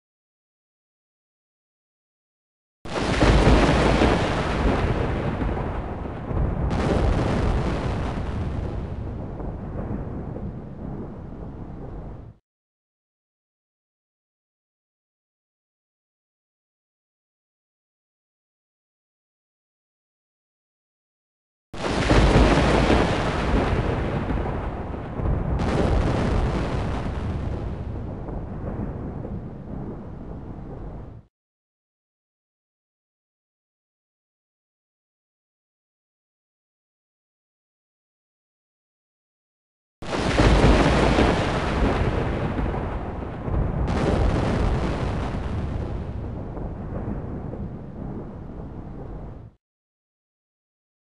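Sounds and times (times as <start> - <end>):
thunder claps rumbling: 2.9 - 12.4, 21.8 - 31.3, 40.0 - 49.6.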